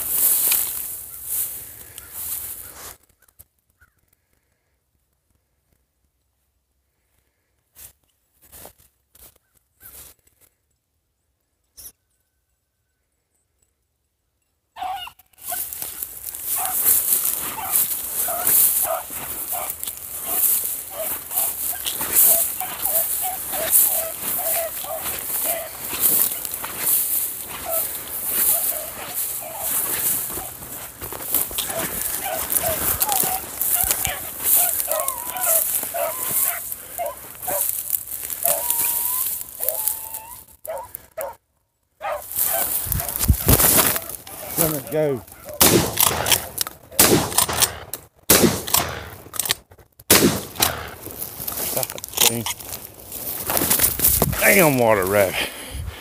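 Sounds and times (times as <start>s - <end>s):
dogs barking: 14.8s - 41.4s, 42.0s - 47.0s
hounds howling: 14.8s - 41.4s, 42.0s - 45.6s.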